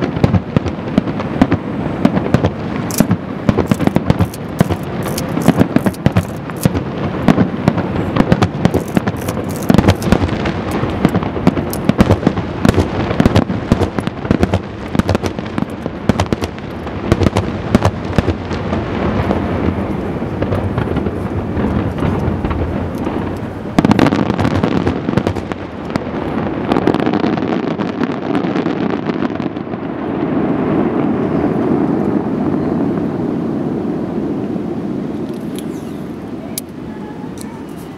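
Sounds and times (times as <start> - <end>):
steady rushing noise: 0.0 - 28.0
fireworks banging and crackling: 0.0 - 37.9.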